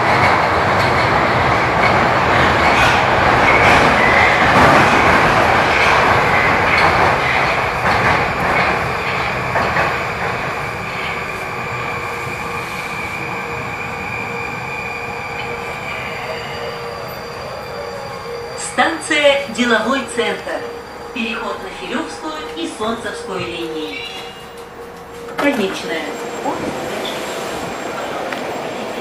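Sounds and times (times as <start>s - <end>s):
metro train wheel and rail noise: 0.0s - 29.0s.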